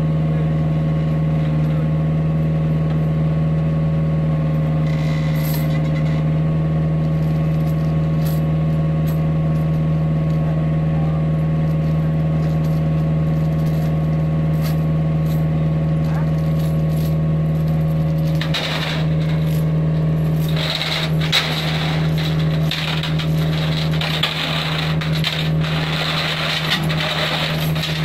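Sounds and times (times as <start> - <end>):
diesel engine idling: 0.0 - 28.0.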